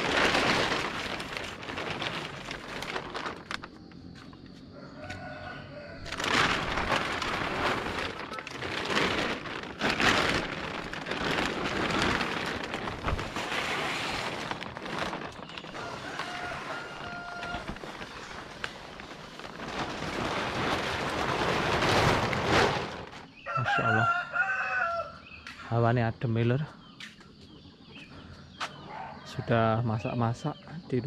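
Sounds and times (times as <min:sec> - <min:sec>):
plastic sheeting rustling: 0:00.0 - 0:04.5, 0:06.0 - 0:24.0.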